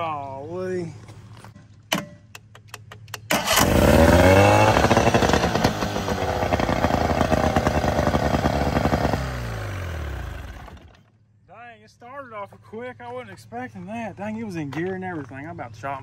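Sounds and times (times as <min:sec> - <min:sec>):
outboard motor running: 0:03.4 - 0:11.1.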